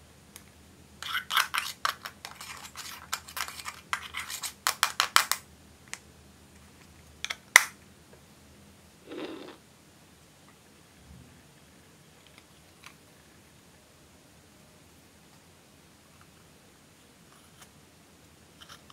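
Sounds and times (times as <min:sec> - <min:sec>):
scissors scraping eyeshadow: 0:01.0 - 0:04.8.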